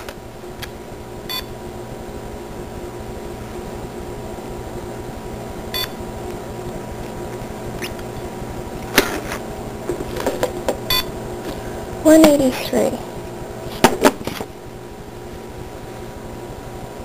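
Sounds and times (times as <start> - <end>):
electrical hum: 0.0 - 17.0
short electronic beep: 5.8 - 6.0.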